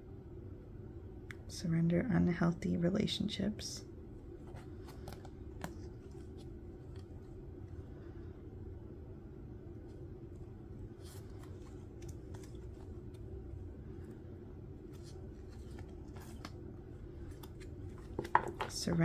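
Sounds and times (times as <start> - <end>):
steady low hum: 0.0 - 19.0
cards scraping and clicking: 4.5 - 7.2, 11.0 - 13.3, 14.8 - 19.0.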